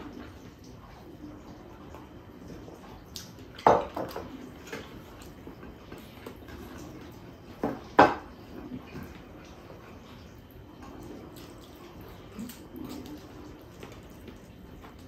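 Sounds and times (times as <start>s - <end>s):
dishes clinking on a table: 7.6s - 8.3s.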